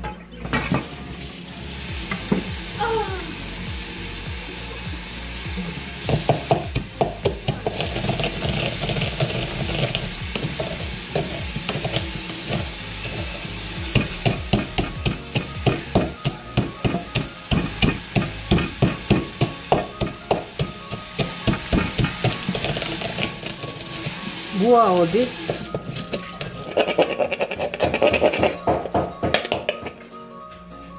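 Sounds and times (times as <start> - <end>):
pestle pounding peanuts: 6.0 - 23.8, 25.4 - 30.0.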